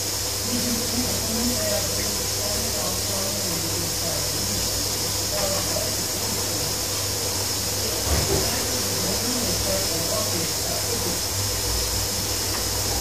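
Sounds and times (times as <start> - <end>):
washing machine motor hum: 0.0 - 13.0
washing machine thump: 8.0 - 8.8.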